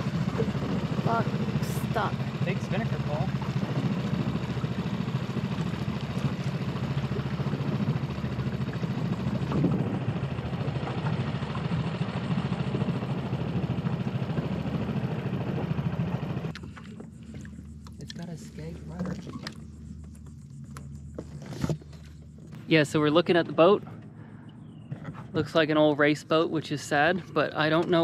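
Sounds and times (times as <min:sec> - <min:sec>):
outboard motor running: 0:00.0 - 0:28.0.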